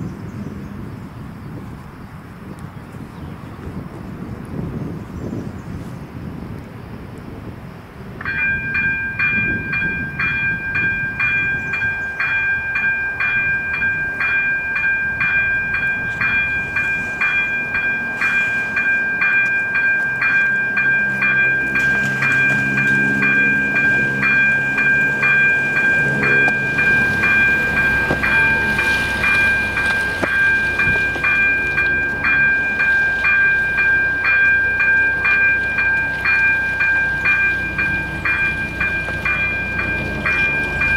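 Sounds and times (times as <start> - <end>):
low vehicle hum: 7.8 - 40.9
level-crossing bell ringing: 8.2 - 40.9.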